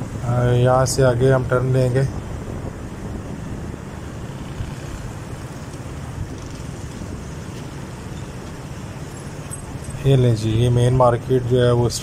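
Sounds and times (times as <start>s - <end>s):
street traffic rumble: 0.0s - 12.0s
motorcycles passing close: 3.1s - 10.1s.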